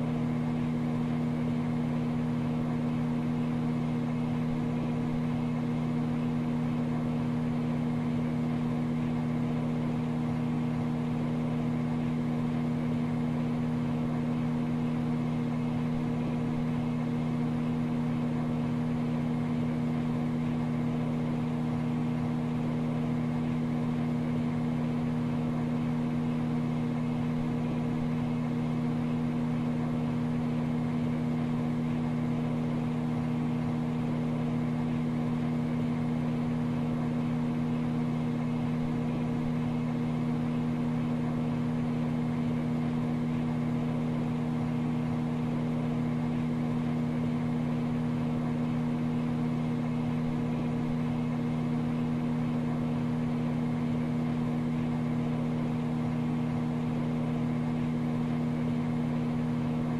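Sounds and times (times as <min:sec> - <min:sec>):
microwave oven humming: 0:00.0 - 0:59.9.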